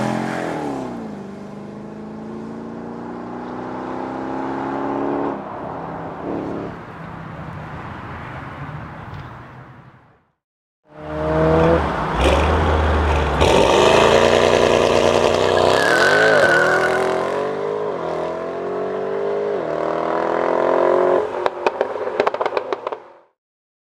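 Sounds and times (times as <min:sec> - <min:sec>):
engine revving: 0:10.9 - 0:21.2.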